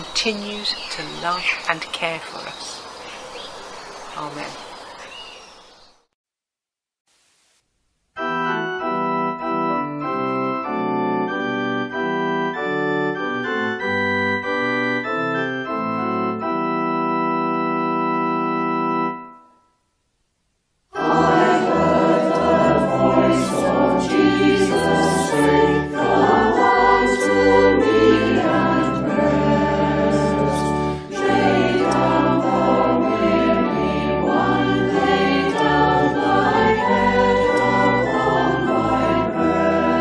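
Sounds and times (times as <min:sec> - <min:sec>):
church organ chords: 0:08.2 - 0:19.7, 0:21.0 - 0:40.0
choir singing: 0:20.9 - 0:40.0.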